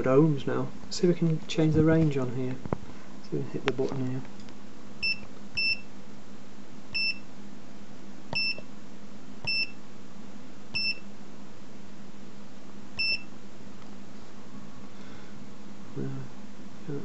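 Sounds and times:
steady low hum: 0.0s - 17.0s
multimeter beeping: 5.0s - 5.9s, 6.9s - 7.3s, 8.3s - 8.7s, 9.4s - 9.8s, 10.8s - 11.1s, 13.0s - 13.3s.

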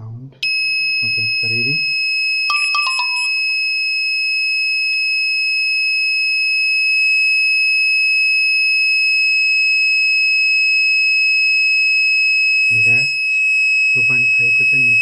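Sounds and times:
high-pitched electronic alarm tone: 0.4s - 1.9s, 2.5s - 3.9s, 12.7s - 13.4s, 14.0s - 15.0s.

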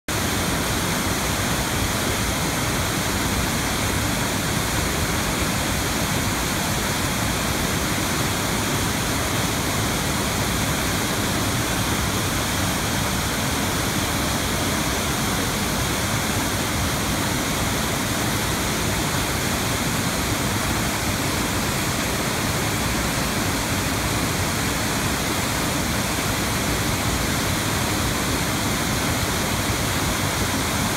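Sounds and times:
waterfall rushing: 0.1s - 30.9s.

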